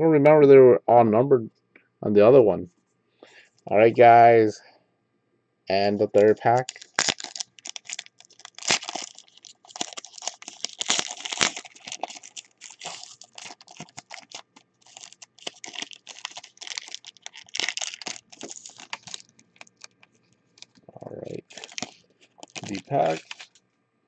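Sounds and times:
foil wrapper crinkling: 6.4s - 20.8s, 21.4s - 23.6s.

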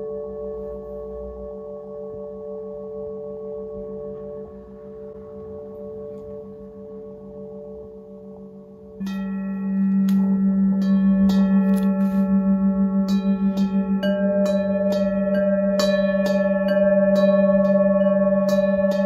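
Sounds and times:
metal singing bowls ringing: 0.0s - 19.0s
wooden stick striking bowl: 9.0s - 19.0s.

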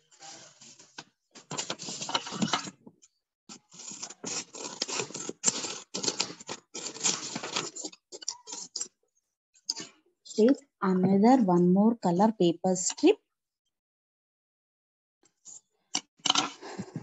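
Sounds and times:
paper rustling: 0.0s - 2.8s, 3.5s - 8.9s.

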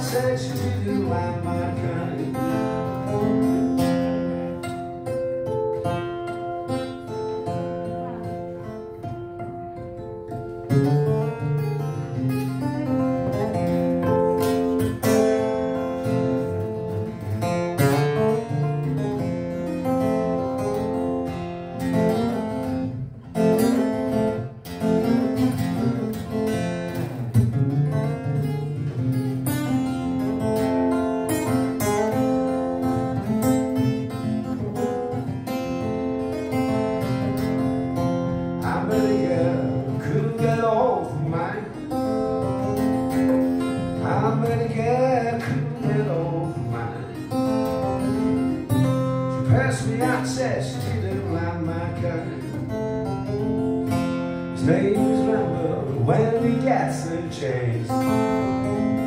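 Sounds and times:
fingerpicked acoustic guitar: 0.0s - 59.0s.

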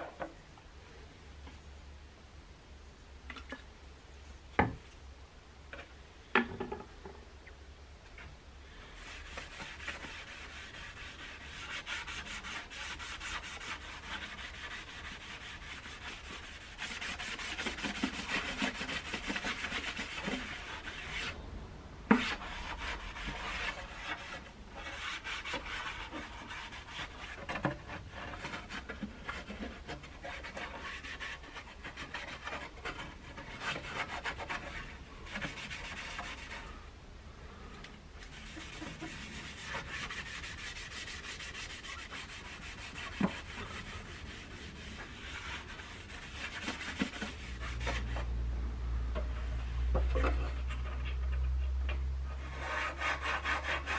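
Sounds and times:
cloth rag wiping wood: 8.8s - 21.3s, 22.2s - 27.5s, 38.3s - 48.2s.

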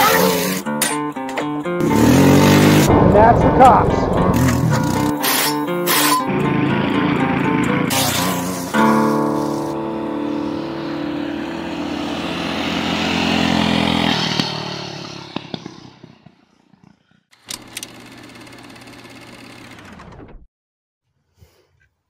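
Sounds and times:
small engine running: 1.8s - 2.9s, 6.0s - 20.4s.

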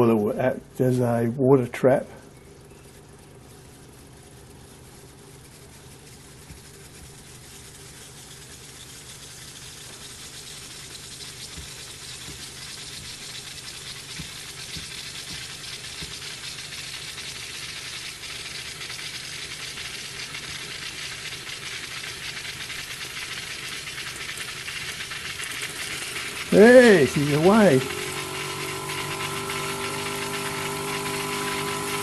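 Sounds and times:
steam hissing: 9.3s - 32.0s.

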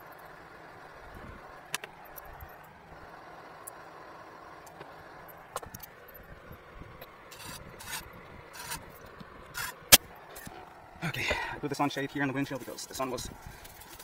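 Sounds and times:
rivnut tool scraping rasps: 7.3s - 10.5s.

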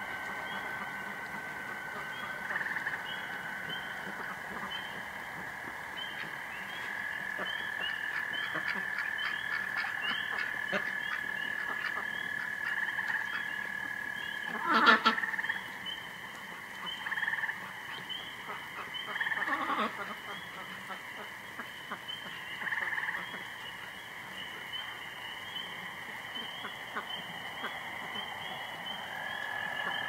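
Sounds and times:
frog chorus trilling: 0.0s - 30.0s
duck or goose call: 6.2s - 13.4s, 14.5s - 15.3s, 18.8s - 21.3s.

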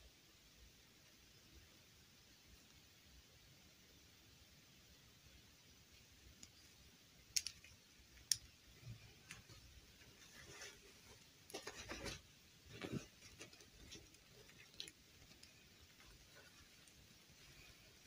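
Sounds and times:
fabric rustling and scraping: 8.8s - 18.0s.

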